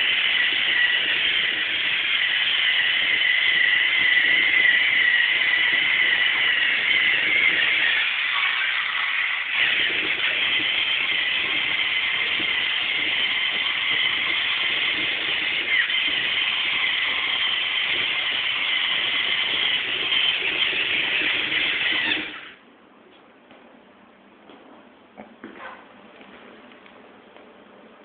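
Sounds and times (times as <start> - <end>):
servo motors whining: 0.0 - 22.6.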